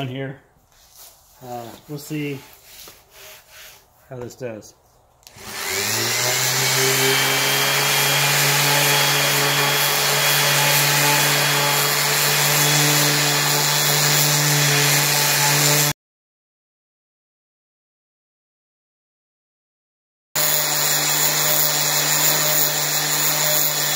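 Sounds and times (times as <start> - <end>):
orbit sander sanding wood: 1.0 - 4.0, 5.3 - 15.9, 20.4 - 23.9.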